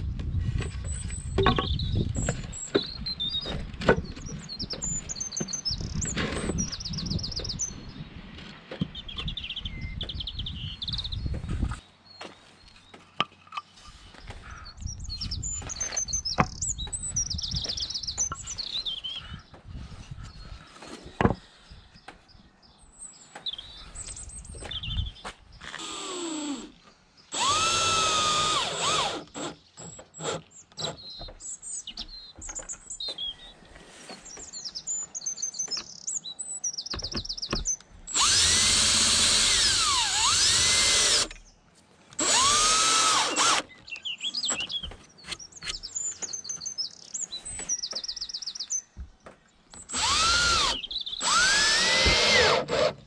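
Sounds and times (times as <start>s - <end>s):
cordless drill driving screws: 25.7s - 31.0s, 38.1s - 41.4s, 42.1s - 43.7s, 49.8s - 53.0s.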